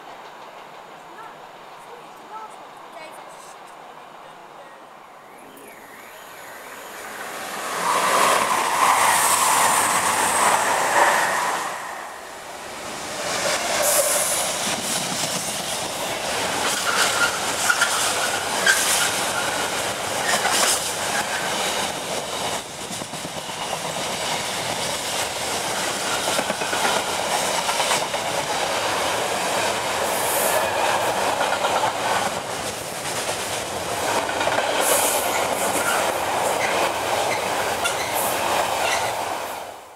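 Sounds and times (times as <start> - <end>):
diesel locomotive passing: 0.0 - 39.9
train wheels clacking over rail joints: 13.2 - 39.2.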